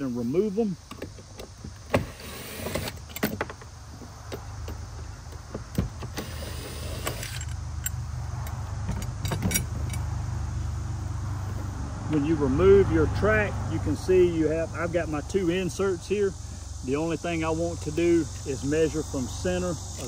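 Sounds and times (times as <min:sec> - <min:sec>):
steady low hum: 0:00.0 - 0:20.0
bolts clicking and metal clatter: 0:00.9 - 0:10.1.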